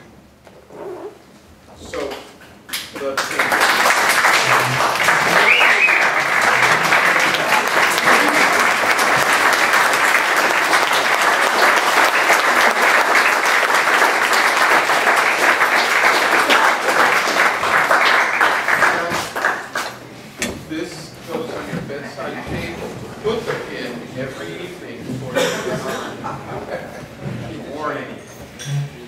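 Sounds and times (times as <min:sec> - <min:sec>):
audience applauding: 0:03.0 - 0:20.0.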